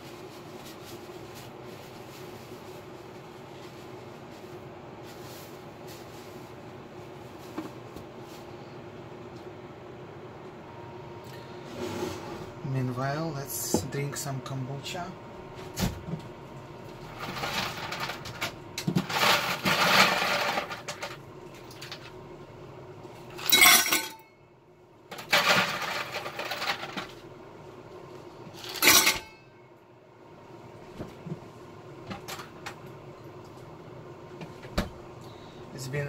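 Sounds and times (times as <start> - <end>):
faint steady hum: 0.0 - 36.0
ice cubes rattling into metal tumbler: 19.0 - 21.2, 25.2 - 27.1.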